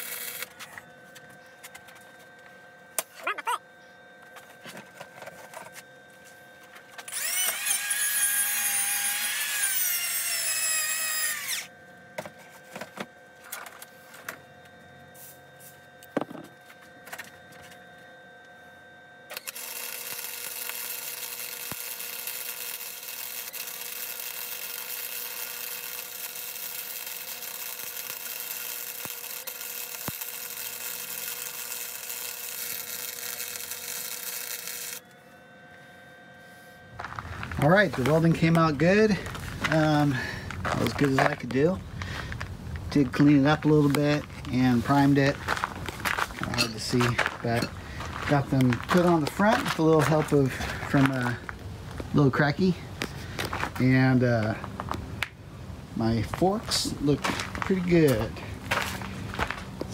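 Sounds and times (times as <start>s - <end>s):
hand power tool running: 0.0s - 0.8s, 6.9s - 12.8s, 19.3s - 35.8s, 36.5s - 52.0s, 56.2s - 59.9s
welder arc buzzing: 0.0s - 59.9s.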